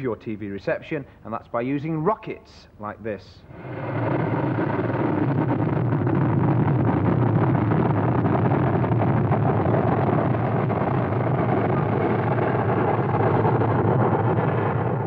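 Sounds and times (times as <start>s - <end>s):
rocket engine roaring: 3.4s - 15.0s.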